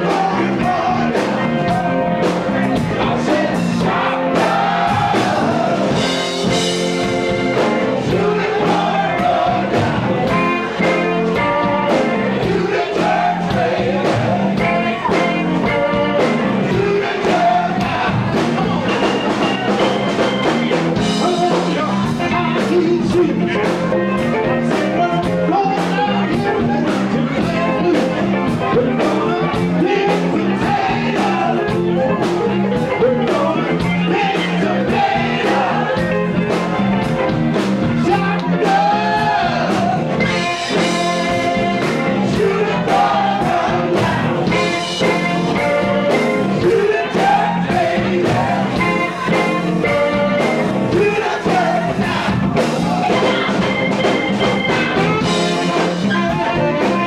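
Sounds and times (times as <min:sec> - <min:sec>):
drums beating: 0:00.0 - 0:57.0
electric guitar: 0:00.0 - 0:57.0
voices singing: 0:00.0 - 0:57.0
saxophone: 0:52.9 - 0:57.0.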